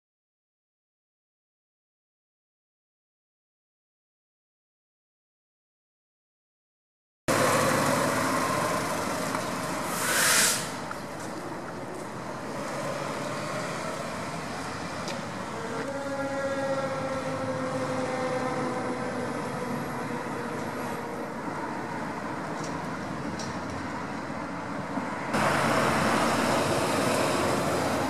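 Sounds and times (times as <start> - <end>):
fire engine running: 7.3 - 28.0
air brake hiss: 9.9 - 10.8.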